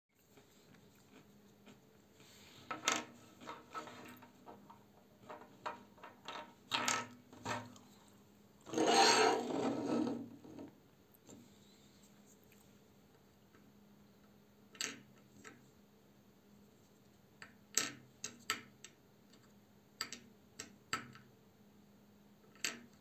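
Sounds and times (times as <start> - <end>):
plastic toy scraping on wood: 8.7 - 10.7.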